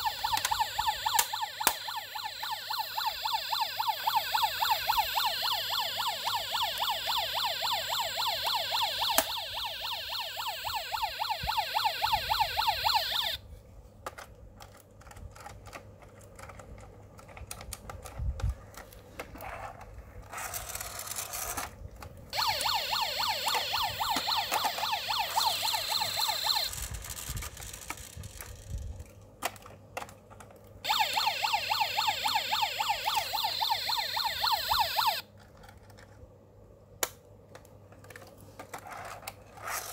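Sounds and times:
toy police siren warbling: 0.0 - 13.4, 22.4 - 27.2, 30.9 - 35.2
toy rolling on floor: 18.4 - 21.8, 25.8 - 29.0, 38.6 - 39.9.

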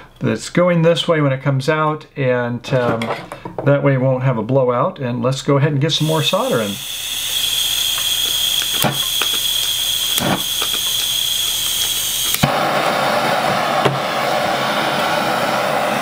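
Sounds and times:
gas hissing with high whistle: 6.0 - 16.0
torch flame rushing: 6.0 - 16.0
torch igniter clicks: 6.1 - 16.0.

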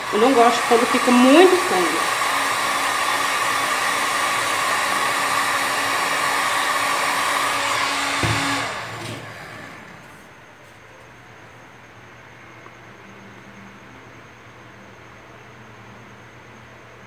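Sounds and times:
heat gun blowing hot air: 0.0 - 9.9.

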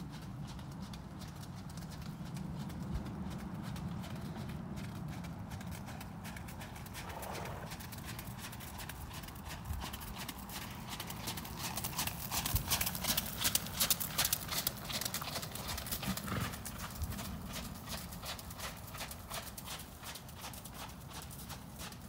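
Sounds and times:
horse hoofbeats trotting: 0.0 - 22.0.

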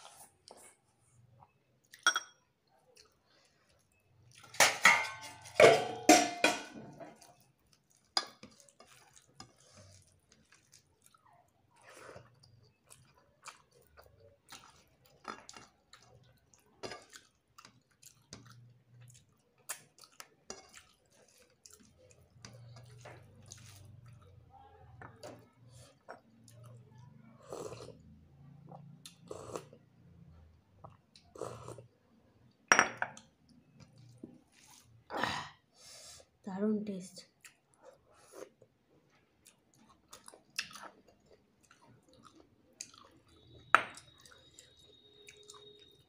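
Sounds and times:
quiet chewing: 0.0 - 4.5, 7.0 - 35.1, 37.3 - 46.0
dishes clattering: 2.0 - 2.4, 4.5 - 7.2, 32.7 - 33.2.

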